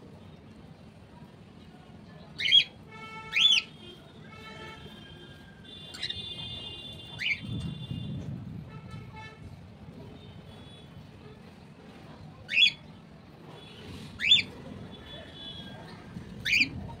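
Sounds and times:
cockatiel chirps: 14.2 - 14.6.

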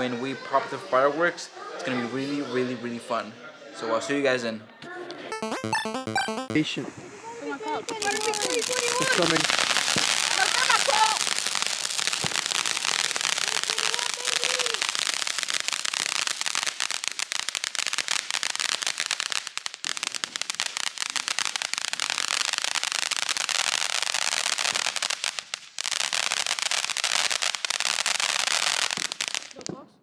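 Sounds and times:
firework hissing and crackling: 7.9 - 29.7.

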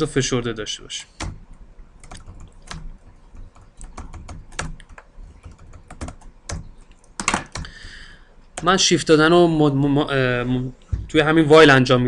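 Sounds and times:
computer keyboard clicks: 2.0 - 7.7.

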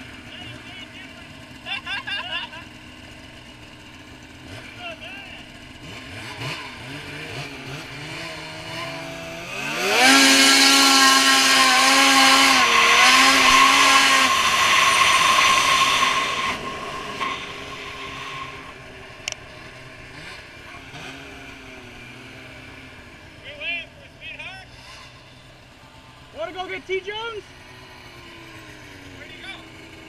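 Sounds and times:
snowmobile engine revving: 0.0 - 30.0
wind and track noise: 9.5 - 22.3.

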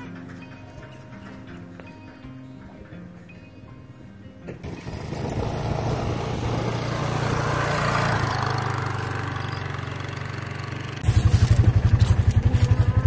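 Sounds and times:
engine with fast even throb: 4.6 - 13.0
utility vehicle engine running: 4.6 - 13.0.

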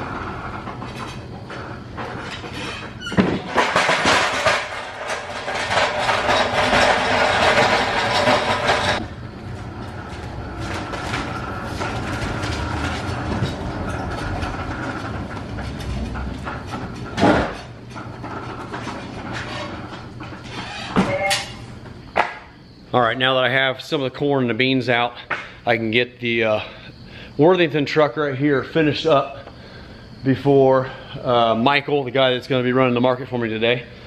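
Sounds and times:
steady background hum: 0.0 - 34.0
pallet jack rattling on concrete: 0.2 - 22.4.

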